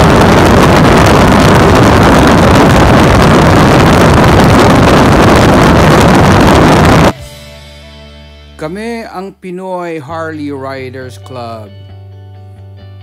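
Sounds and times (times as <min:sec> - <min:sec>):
wind rushing over microphone: 0:00.0 - 0:07.2.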